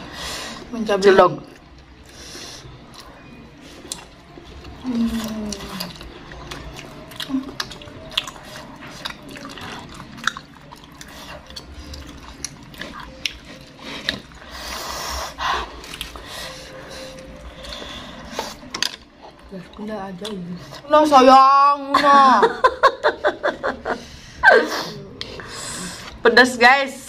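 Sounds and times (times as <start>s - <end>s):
chewing and mouth smacks: 3.8s - 14.5s.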